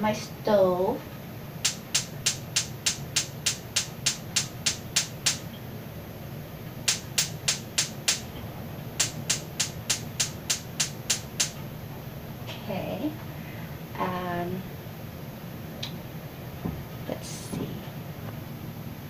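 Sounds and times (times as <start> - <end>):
gas stove igniter clicking: 1.6 - 5.5, 6.9 - 8.3, 9.0 - 11.6.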